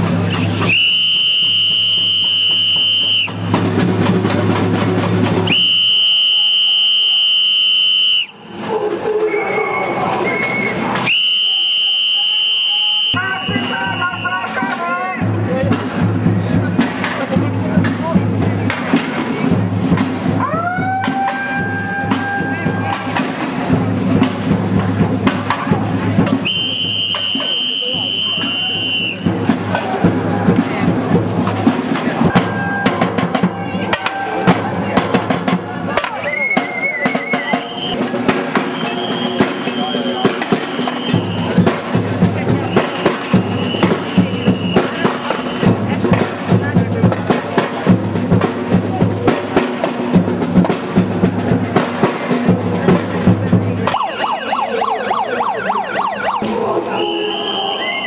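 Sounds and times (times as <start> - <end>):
drums beating irregularly: 0.0 - 9.3, 10.7 - 58.0
crowd noise: 0.0 - 58.0
shrill noisemaker blasts: 53.9 - 58.0.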